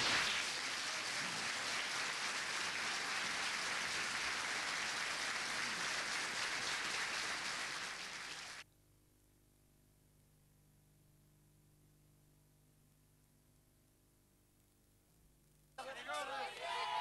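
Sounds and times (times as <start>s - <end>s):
audience applauding: 0.0s - 8.6s, 15.8s - 17.0s.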